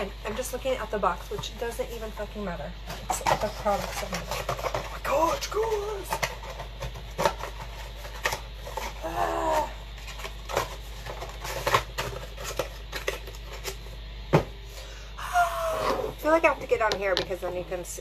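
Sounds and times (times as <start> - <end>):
cardboard box being unpacked: 3.0 - 13.9.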